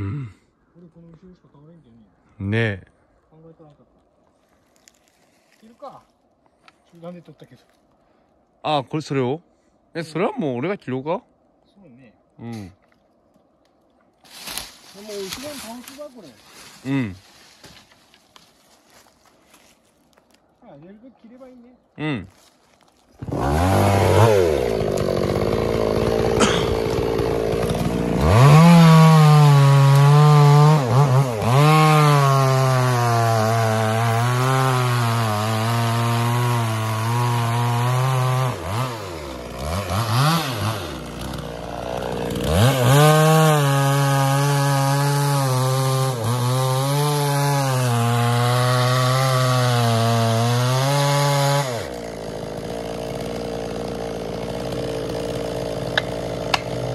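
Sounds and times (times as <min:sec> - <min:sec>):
chainsaw cutting wood: 0:23.2 - 0:56.9.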